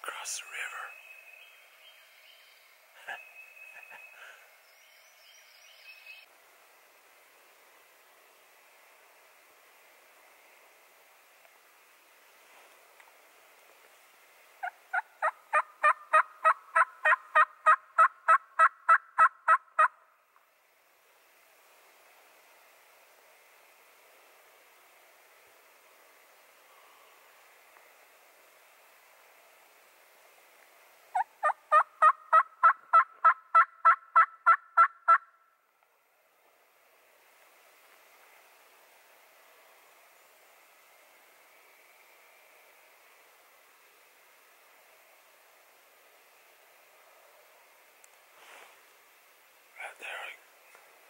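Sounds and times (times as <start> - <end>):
turkey yelps: 14.6 - 20.0, 31.1 - 35.3.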